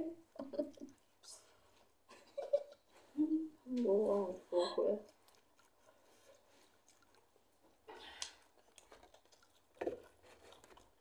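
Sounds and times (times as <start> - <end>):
chewing with mouth clicks: 5.0 - 11.0.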